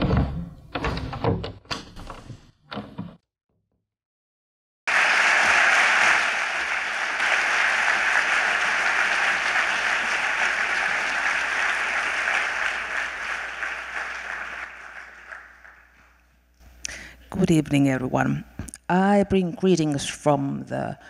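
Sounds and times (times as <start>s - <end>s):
audience applauding: 4.9s - 16.2s.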